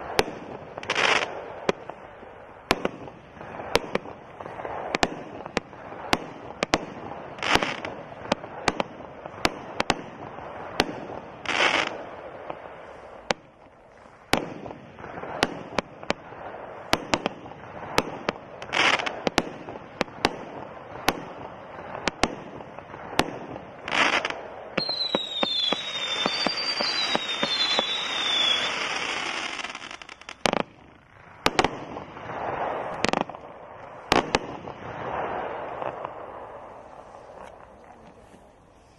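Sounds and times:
firework reports: 0.0s - 38.9s
fireworks crackling: 0.0s - 38.9s
firework whistles: 23.8s - 30.6s.

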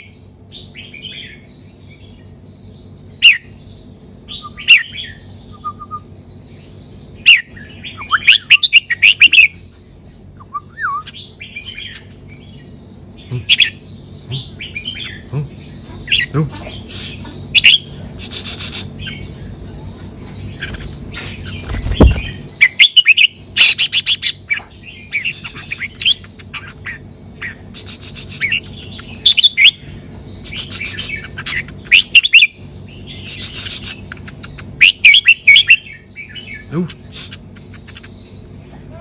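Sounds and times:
bird singing whistled trills: 4.2s - 6.2s, 10.4s - 12.6s.

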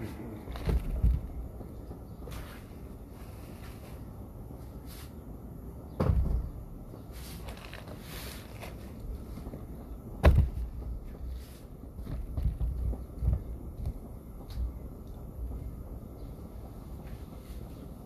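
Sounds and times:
low rumbling noise: 0.0s - 18.0s
dull thumps: 6.0s - 6.7s, 9.4s - 11.4s.

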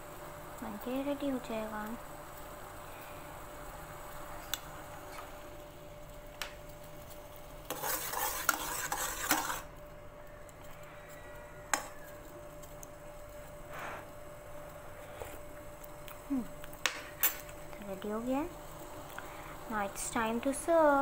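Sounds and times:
coffee bubbling in saucepan: 0.0s - 21.0s
metal clinking and scraping on pan: 7.6s - 9.7s, 11.7s - 12.0s.

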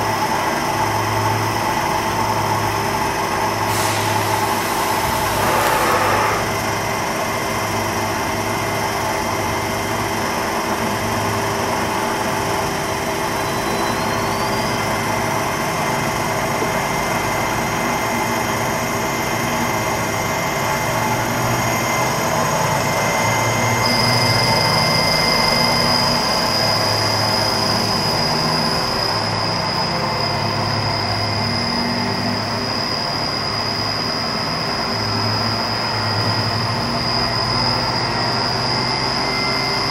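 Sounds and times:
grinder machine hum and whine: 0.0s - 39.9s
steady high tone: 3.7s - 7.4s
rising high tone: 4.5s - 6.9s.

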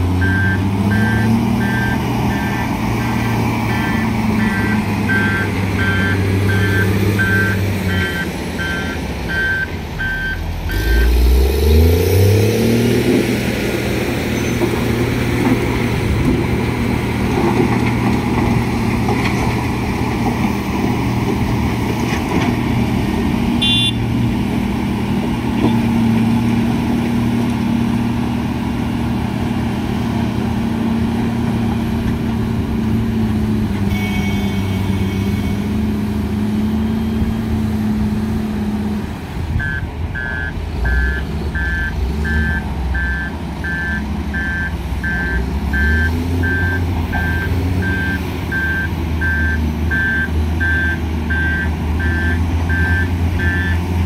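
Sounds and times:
heavy diesel engines working: 0.0s - 54.0s
reversing alarm beeping: 0.2s - 2.7s, 3.6s - 11.2s, 39.6s - 53.8s.

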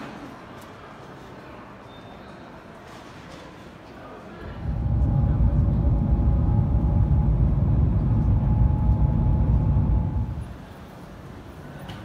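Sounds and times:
low train cabin rumble: 4.4s - 10.7s
faint high whine: 4.4s - 10.8s.

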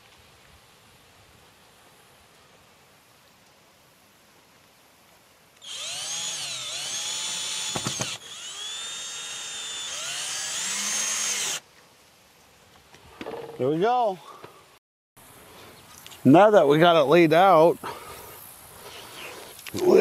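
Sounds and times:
cordless drill whining: 5.6s - 11.6s.

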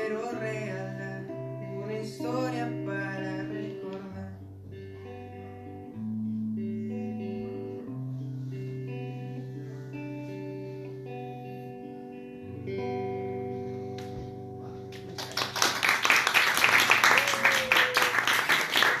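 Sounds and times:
electric guitar chords: 0.0s - 19.0s
audience applause: 14.9s - 19.0s.

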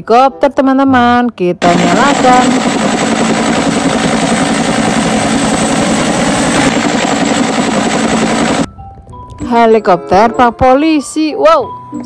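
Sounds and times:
toy helicopter rotor noise: 1.6s - 8.7s.

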